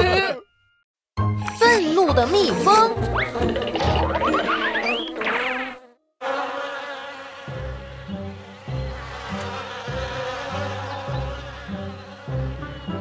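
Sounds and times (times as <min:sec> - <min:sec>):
light background music: 0:01.2 - 0:04.4
cartoon bees buzzing: 0:03.1 - 0:13.0.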